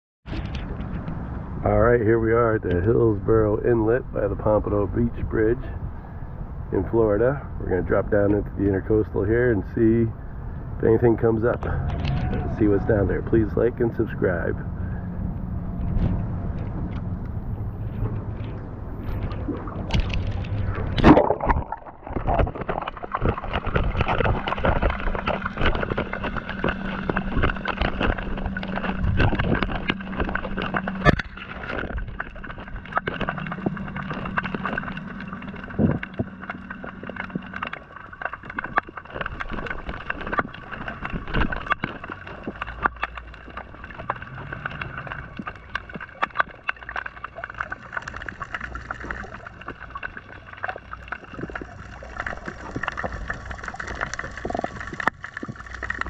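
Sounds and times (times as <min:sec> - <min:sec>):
sharp underwater clicks and crackles: 0:00.2 - 0:01.7, 0:02.4 - 0:56.0
muffled underwater hum: 0:00.3 - 0:56.0
splash into water: 0:19.1 - 0:33.4.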